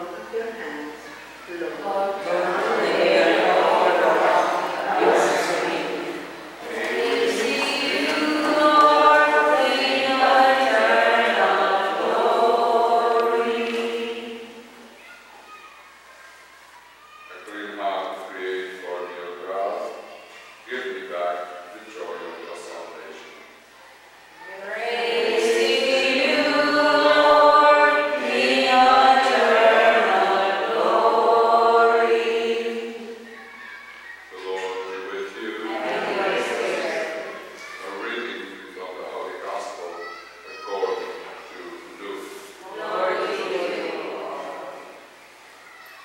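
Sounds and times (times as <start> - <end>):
congregation singing a chant: 1.5 - 14.9, 24.5 - 33.4, 34.3 - 39.8, 40.8 - 45.2.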